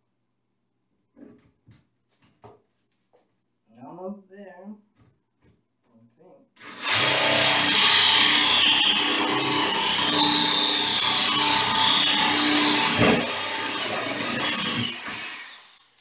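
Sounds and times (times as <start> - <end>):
drill grinding into tile: 6.6 - 16.0.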